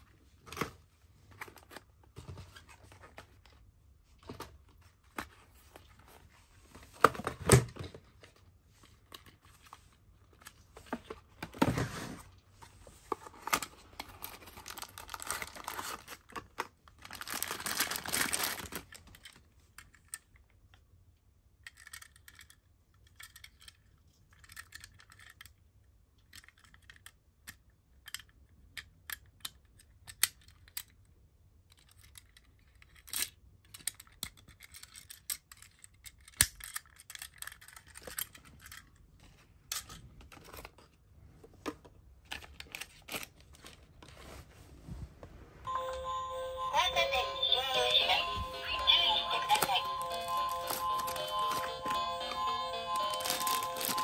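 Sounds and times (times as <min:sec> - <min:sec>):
small clicks and taps of toy car: 0:21.5 - 0:39.0
paper rustling and sliding: 0:43.4 - 0:45.6.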